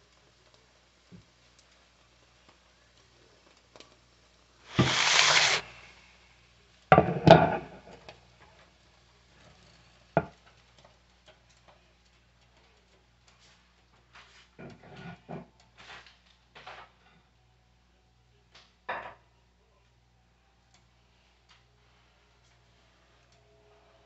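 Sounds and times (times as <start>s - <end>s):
short hiss: 4.6s - 6.4s
kitchen clunks: 6.9s - 8.0s.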